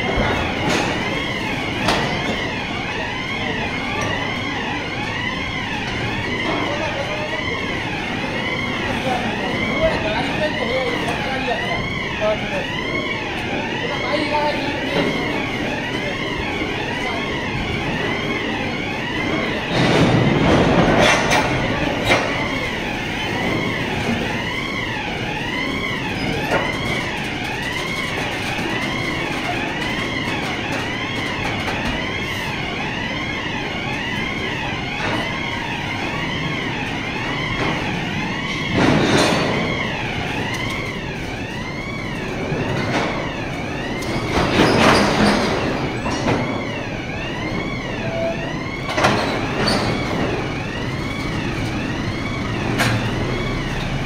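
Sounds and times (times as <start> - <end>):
warbling warning siren: 0.0 - 54.0.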